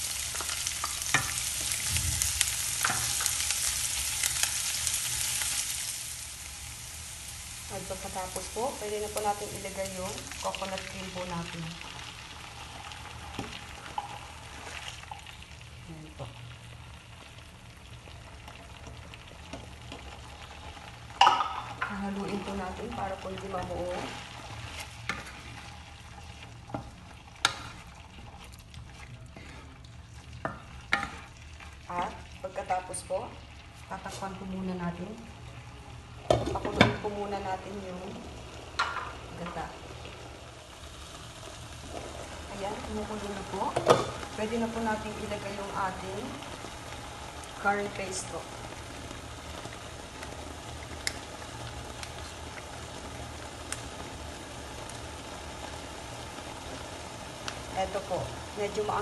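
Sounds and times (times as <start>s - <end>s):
cream bubbling in a frying pan: 0.0s - 59.0s
faint sizzle: 0.0s - 59.0s
wooden spatula stirring in a pan: 23.3s - 32.2s.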